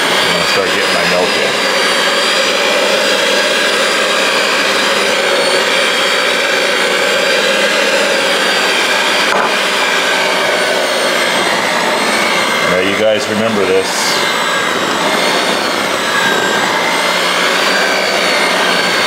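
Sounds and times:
electric hand mixer running: 0.0s - 19.0s.

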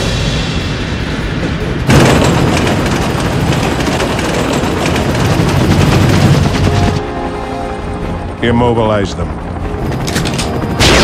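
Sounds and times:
freight train rumbling: 0.0s - 9.0s
fast even wheel clatter: 1.9s - 7.0s.

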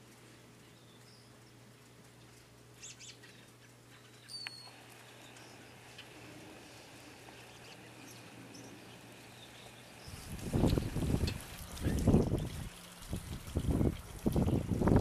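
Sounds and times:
small high calls: 2.8s - 10.3s.

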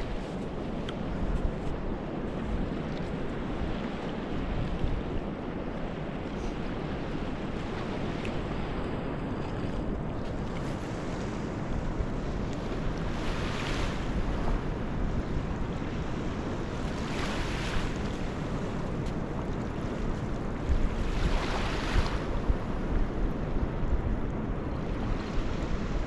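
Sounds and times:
small waves washing onto sand: 0.0s - 26.0s
wind buffeting microphone: 0.0s - 26.0s.

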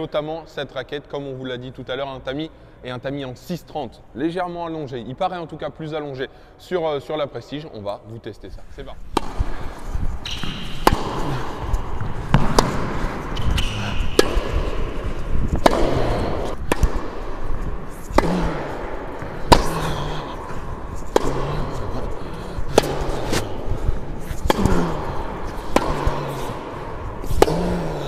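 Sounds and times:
tennis ball hit by rackets: 9.1s - 28.0s.

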